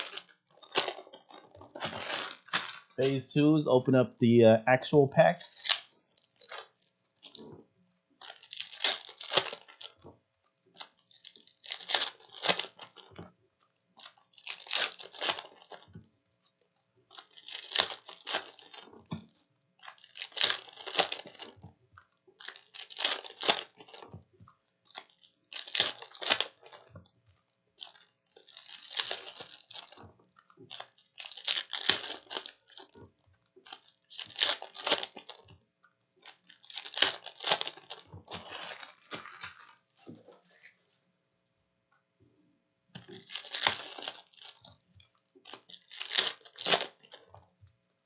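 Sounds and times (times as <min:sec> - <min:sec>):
foil wrappers tearing and crinkling: 0:00.0 - 0:03.2, 0:05.6 - 0:07.5, 0:08.2 - 0:10.0, 0:10.8 - 0:13.1, 0:14.0 - 0:15.9, 0:17.1 - 0:19.0, 0:19.8 - 0:21.6, 0:22.4 - 0:24.1, 0:24.9 - 0:26.9, 0:27.8 - 0:30.0, 0:30.6 - 0:33.0, 0:33.6 - 0:35.5, 0:36.2 - 0:40.0, 0:43.0 - 0:44.7, 0:45.4 - 0:47.3.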